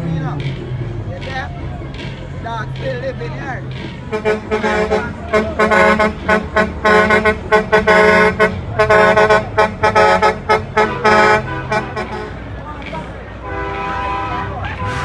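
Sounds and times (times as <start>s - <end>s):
truck air horn blasts: 4.1s - 12.6s, 13.4s - 15.0s.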